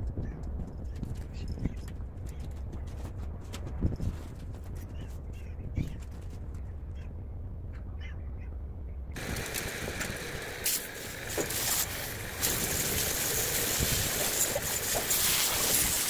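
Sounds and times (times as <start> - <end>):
pressure washer spray hissing: 9.2 - 16.0.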